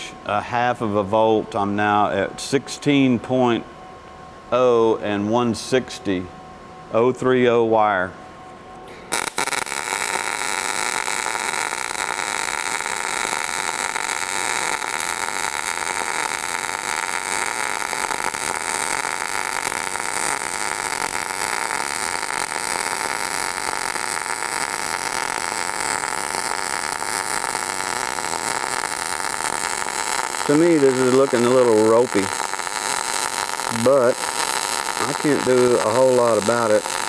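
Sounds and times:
welding arc crackling: 9.1s - 37.0s.

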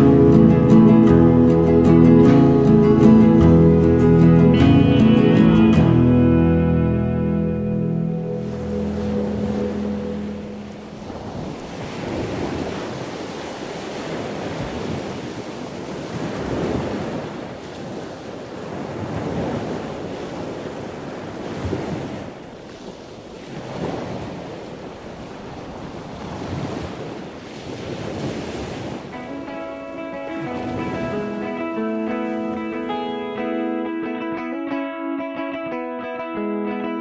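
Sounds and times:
music with plucked guitar: 0.0s - 11.5s, 29.1s - 37.0s.

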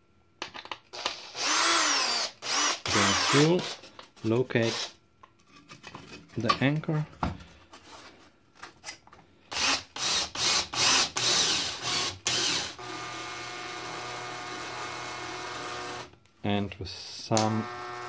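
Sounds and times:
cordless drill whining: 1.0s - 3.8s, 4.6s - 4.9s, 9.5s - 16.2s, 17.5s - 18.0s.

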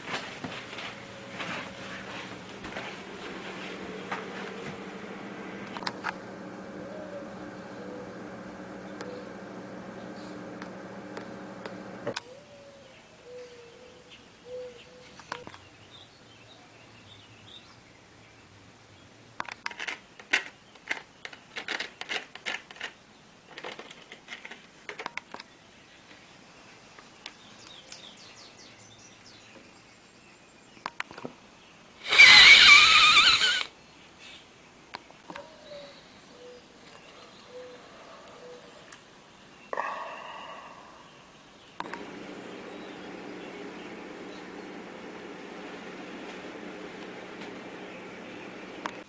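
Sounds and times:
paper crinkling and rustling: 0.0s - 4.8s.

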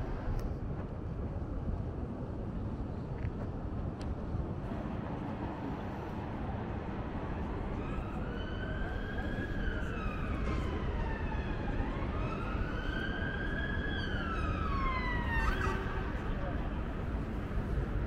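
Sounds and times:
siren wailing: 7.6s - 16.4s.

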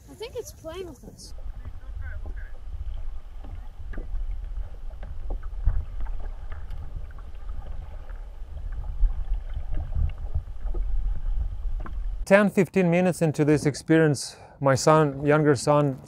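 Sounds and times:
small underwater clicks and knocks: 1.3s - 12.2s
underwater rumble: 1.3s - 12.2s.

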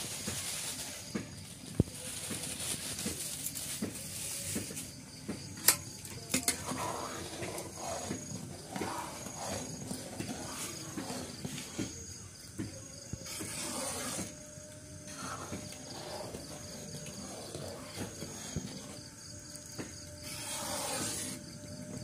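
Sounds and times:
faint insects chirping: 0.0s - 22.0s
ladle stirring thick liquid: 6.0s - 12.0s, 13.2s - 14.3s, 15.1s - 19.0s, 20.2s - 21.4s.

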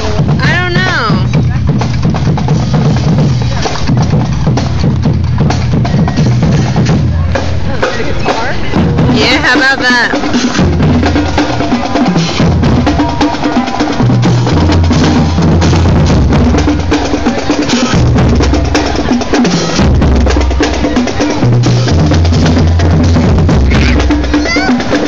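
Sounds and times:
cymbals: 0.0s - 25.0s
marching bass drums: 0.0s - 25.0s.

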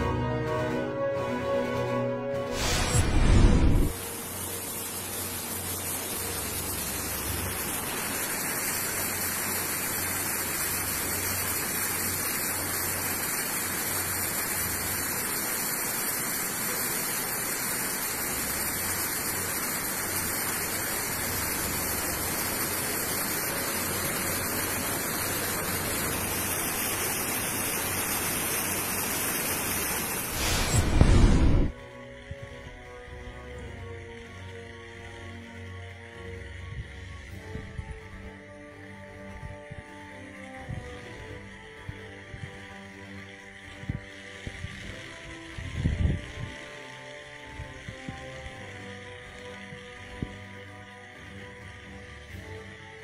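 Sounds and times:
water rushing: 2.5s - 31.7s.

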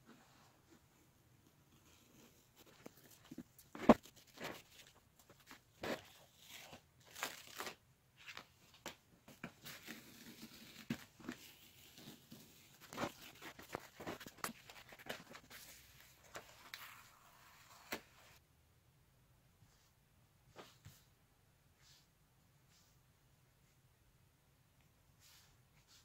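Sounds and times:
tape crackling and tearing: 6.4s - 7.8s.

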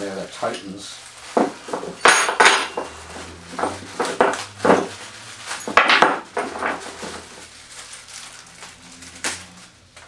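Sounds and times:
plastic wrap crinkling: 0.0s - 2.0s, 2.6s - 10.0s
metal parts clinking: 2.0s - 3.0s, 3.6s - 7.2s.

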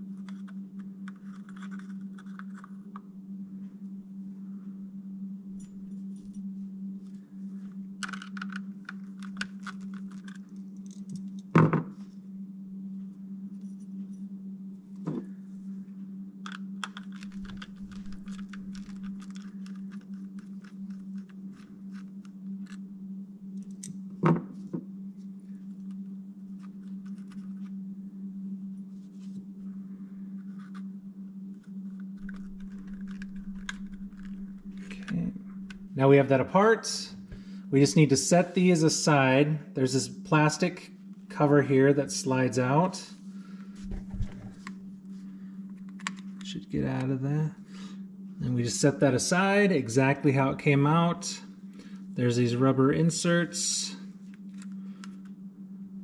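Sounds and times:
steady low hum: 0.0s - 56.0s
plastic housing clicks and scrapes: 0.2s - 3.0s, 8.0s - 11.4s, 16.4s - 22.8s, 31.6s - 35.8s, 45.8s - 46.5s.

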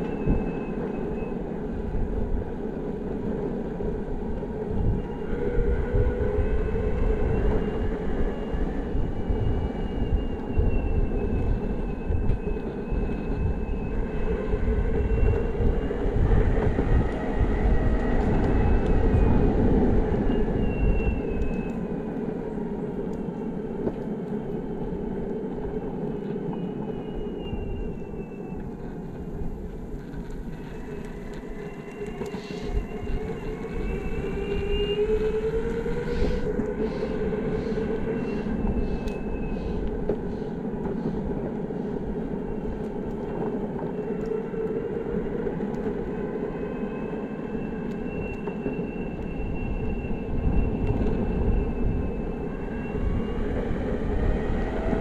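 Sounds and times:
wind on microphone: 0.0s - 24.1s, 24.8s - 55.0s
light ticks under wheels: 23.0s - 26.9s, 35.7s - 46.0s.

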